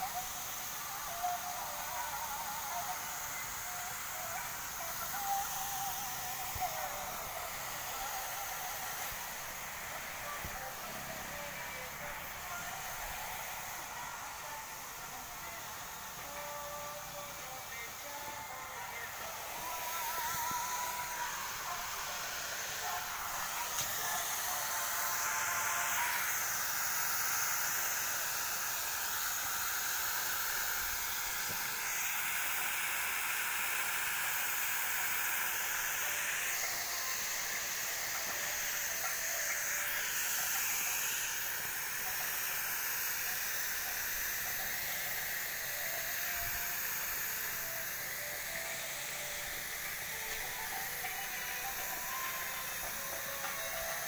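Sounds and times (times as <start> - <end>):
fountain water jets hissing: 0.0 - 54.0.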